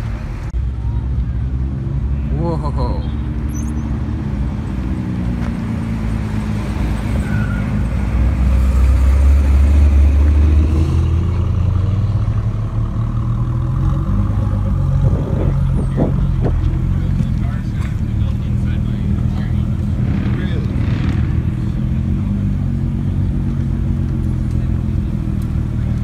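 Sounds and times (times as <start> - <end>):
car engine at low speed: 0.0 - 26.0.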